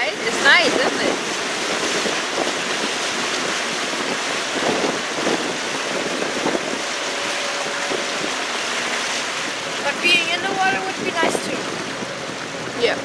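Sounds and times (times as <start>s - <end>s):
water rushing along hull: 0.0s - 13.0s
wind buffeting microphone: 0.0s - 13.0s.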